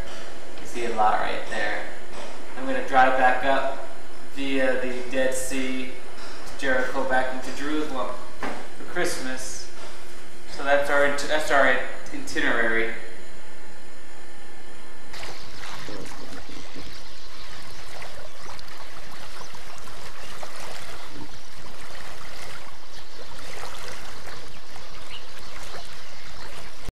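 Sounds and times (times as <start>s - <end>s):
lake water splashing and lapping: 15.1s - 26.9s.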